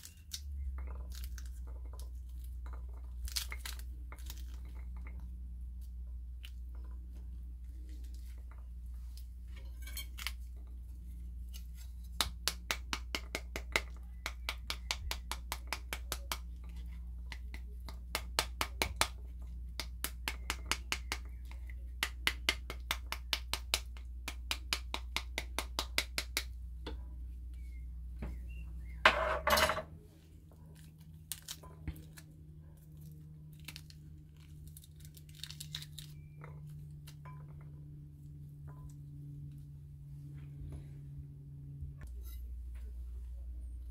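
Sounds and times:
steady low hum: 0.0 - 43.9
utensil knocking on pomegranate: 12.2 - 26.6.

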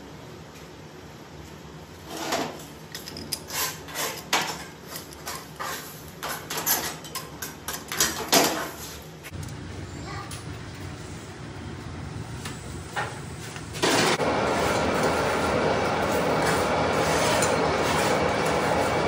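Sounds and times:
low machine hum: 9.3 - 19.0.

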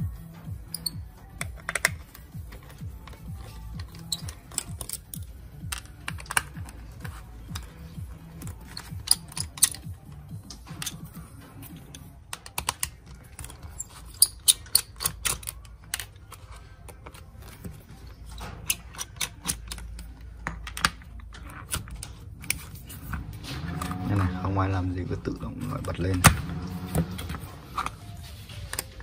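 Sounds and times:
clicks of plastic parts and tools: 0.7 - 6.8, 8.4 - 11.0, 11.7 - 17.7, 18.3 - 22.7.

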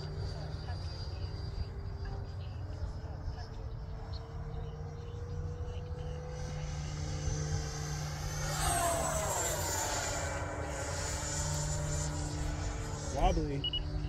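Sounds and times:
model jet whine flying past: 0.0 - 14.0.

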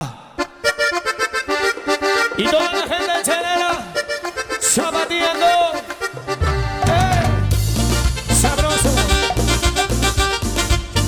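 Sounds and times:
accordion-like lead melody: 0.4 - 11.0
percussion: 5.9 - 11.0
heavy bass: 6.4 - 11.0.

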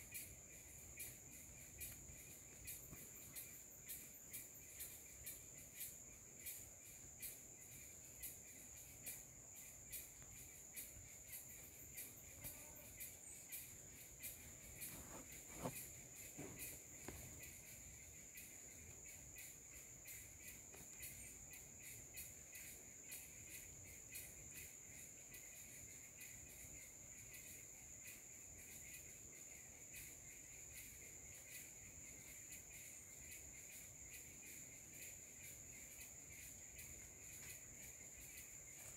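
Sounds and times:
insect chirps: 0.0 - 38.9
insects buzzing: 0.0 - 38.9
faint rustles: 14.3 - 17.7.

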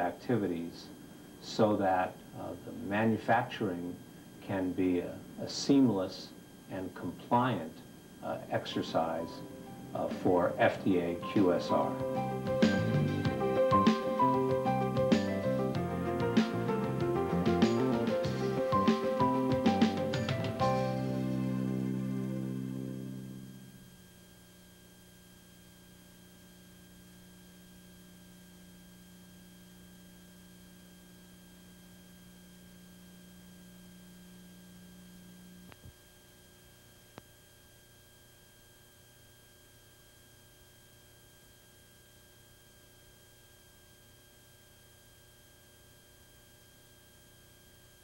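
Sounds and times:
videotape hiss: 0.0 - 44.9
electrical hum: 0.0 - 48.0
closing music: 8.8 - 23.7.

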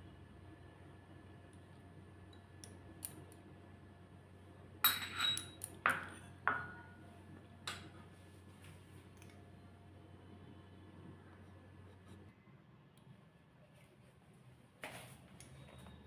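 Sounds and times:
spoon clinking glass bowls: 4.8 - 6.9.

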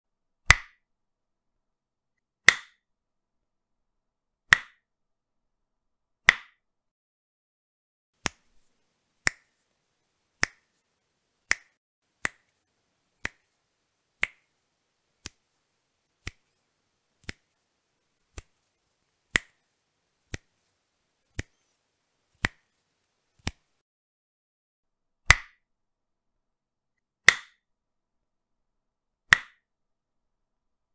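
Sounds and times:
finger snaps: 0.5 - 0.8, 4.5 - 4.8, 8.2 - 9.6, 10.4 - 10.8, 11.4 - 12.6, 13.2 - 13.6, 14.2 - 14.5, 15.2 - 15.5, 16.2 - 16.6, 17.2 - 17.6, 18.3 - 18.7, 19.3 - 19.6, 20.3 - 20.6, 21.3 - 21.7, 22.4 - 22.7, 23.4 - 23.8, 25.3 - 25.6, 27.3 - 27.6, 29.3 - 29.6.

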